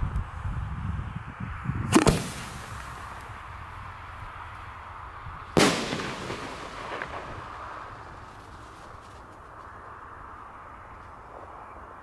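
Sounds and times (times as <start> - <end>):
firework mortar launch bang: 1.9 - 3.2, 5.6 - 9.2
firework shell bursting: 1.9 - 3.2, 5.6 - 9.3.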